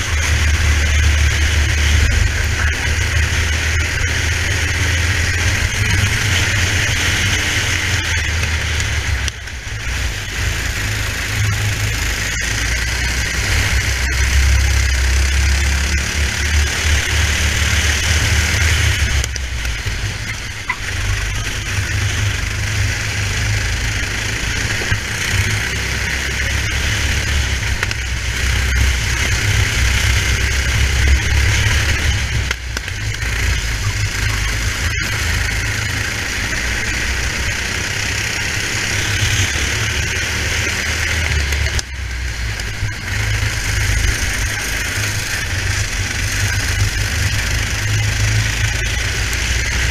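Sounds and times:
kart engine running: 0.0 - 49.9.

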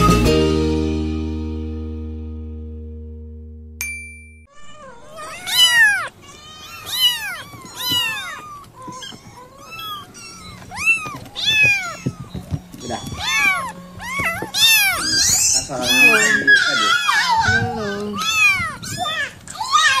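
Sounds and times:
kitten meowing: 4.5 - 20.0.

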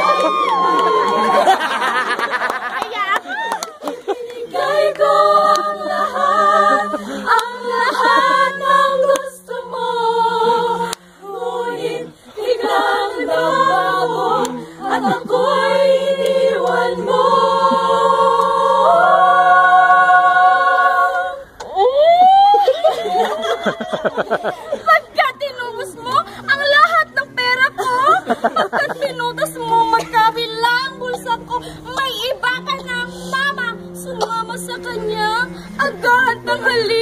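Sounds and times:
women singing a cappella: 3.7 - 37.0.

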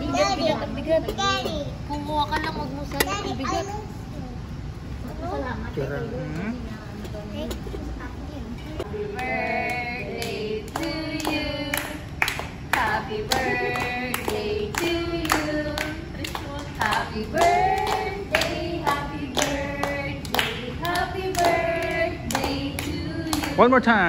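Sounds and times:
group singing: 8.7 - 24.0
rhythmic hand-clapping: 9.1 - 23.7.

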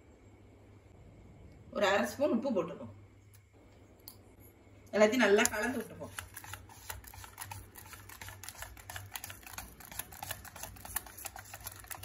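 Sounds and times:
whisk beating in a metal bowl: 6.0 - 12.0.

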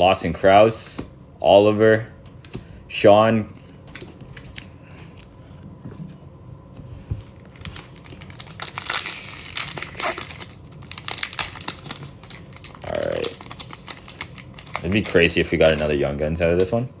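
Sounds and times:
foil wrapper crinkling and tearing: 7.5 - 16.0.

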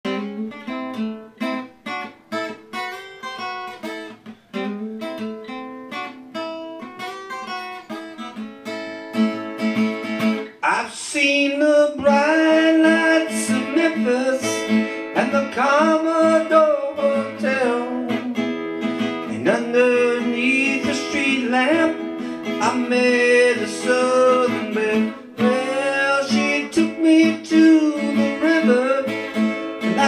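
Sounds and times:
acoustic guitar playing: 0.0 - 30.0
man singing: 10.6 - 30.0.

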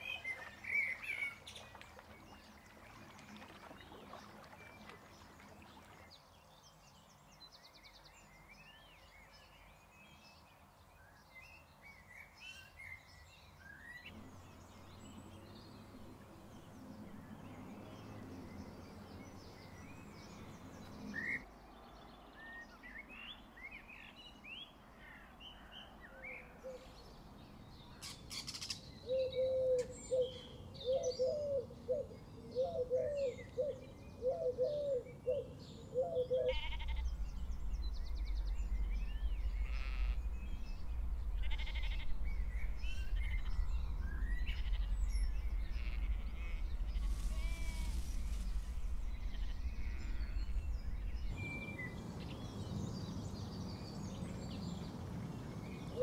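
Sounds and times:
small birds chirping and singing: 25.4 - 56.0
repeated lower bird calls: 28.0 - 37.3, 41.5 - 42.1.

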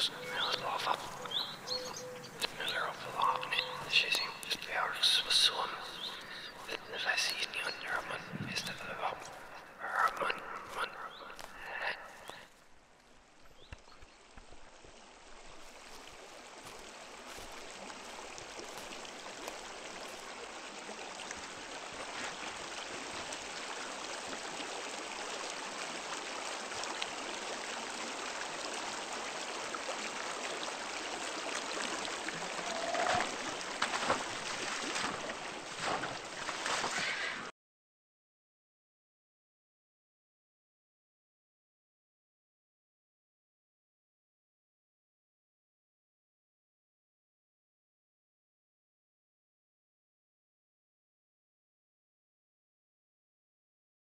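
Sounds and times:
stream water rushing: 0.0 - 37.4
sharp splashes: 29.5 - 37.4.

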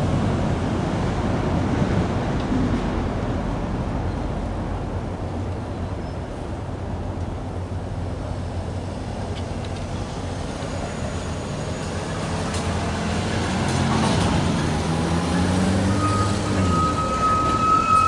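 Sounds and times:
truck engine approaching: 6.3 - 18.0
steady high squeal: 10.2 - 12.8, 15.2 - 18.0.

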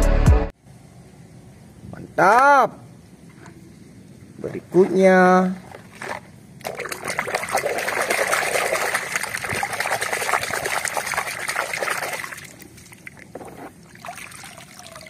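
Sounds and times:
water splashing in a plastic tub: 5.4 - 15.0
water trickling and dripping: 6.6 - 15.0.

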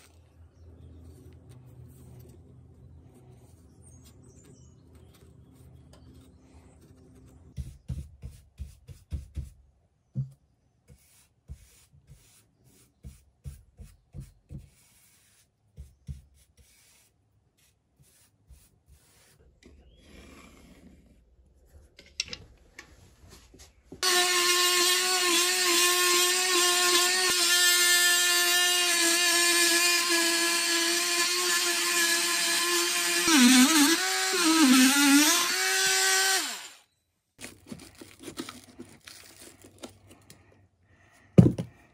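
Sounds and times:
oscillating tool cutting plasterboard: 24.0 - 36.9.

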